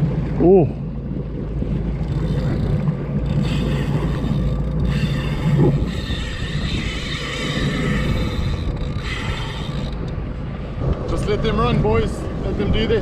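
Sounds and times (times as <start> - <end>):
jet ski engine hum: 0.0 - 13.0
fishing reel drag buzzing: 2.0 - 10.1.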